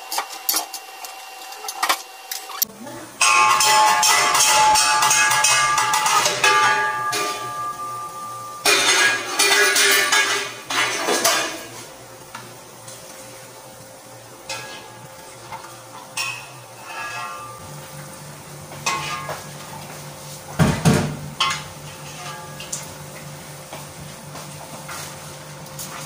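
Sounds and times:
low steady hum: 0:02.6 - 0:24.1
metal pots clattering: 0:03.2 - 0:11.9, 0:14.5 - 0:17.9, 0:18.7 - 0:20.0, 0:20.6 - 0:23.3.

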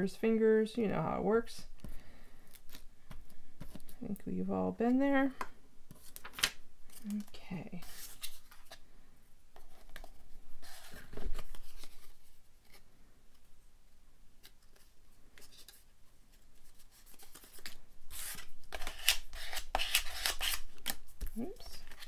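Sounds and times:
paper rustling and rubbing: 0:07.8 - 0:08.8, 0:09.6 - 0:12.8, 0:14.4 - 0:22.0.

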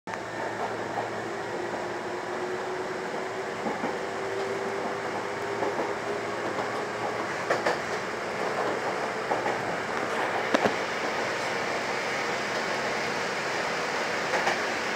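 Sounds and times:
electric train hum: 0:00.1 - 0:14.9
train wheels rumbling on rail: 0:00.1 - 0:14.9
wheels clacking over rail joints: 0:03.2 - 0:11.5.

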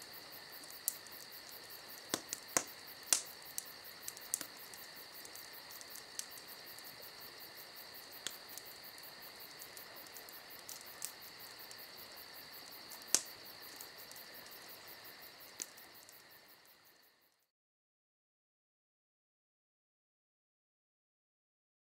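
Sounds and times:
insects trilling: 0:00.0 - 0:17.4.

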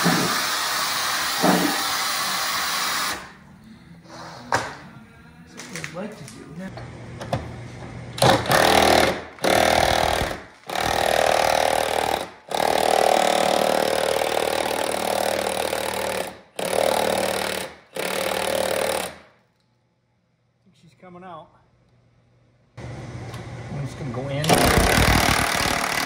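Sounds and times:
impact wrench hammering: 0:01.3 - 0:01.9, 0:08.2 - 0:19.3, 0:24.5 - 0:26.0.

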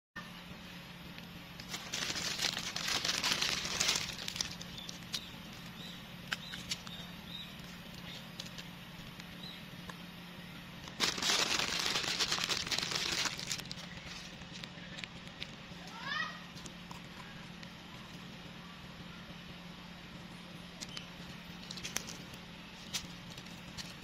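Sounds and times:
plastic wrapper crinkling: 0:01.6 - 0:05.3, 0:10.9 - 0:15.1.

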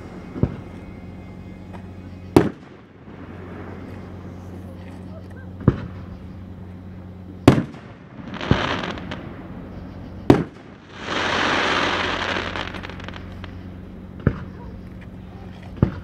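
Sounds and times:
firework booms: 0:02.4 - 0:04.0, 0:05.6 - 0:06.1, 0:07.4 - 0:13.5
firework crackling hiss: 0:07.4 - 0:16.0.

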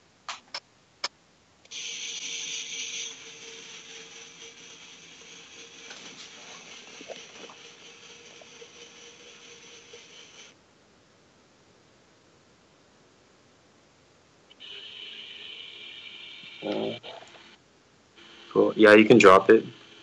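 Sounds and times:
small geared motor whirring: 0:01.7 - 0:10.5.

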